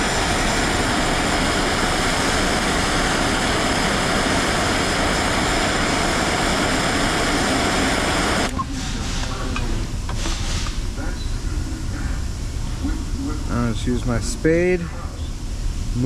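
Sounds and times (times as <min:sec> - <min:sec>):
gas torch hissing: 0:00.0 - 0:11.5.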